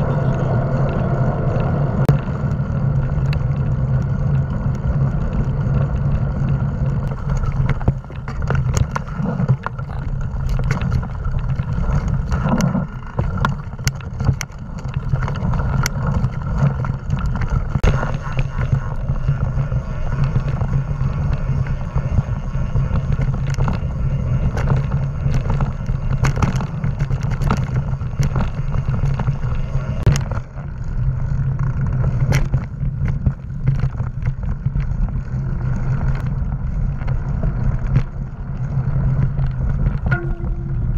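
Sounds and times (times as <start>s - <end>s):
bike clicking and rattling: 0.0s - 40.9s
tyres rolling on dirt: 0.0s - 40.9s
wind buffeting microphone: 0.0s - 40.9s.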